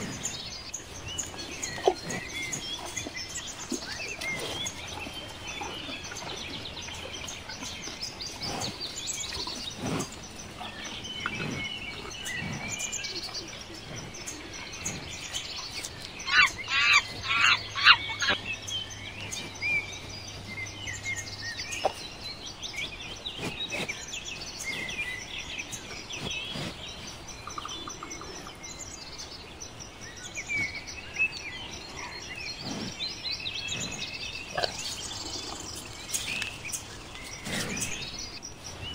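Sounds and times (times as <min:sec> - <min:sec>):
small birds chirping: 0:00.0 - 0:38.9
rapid harsh bird calls: 0:07.5 - 0:28.9.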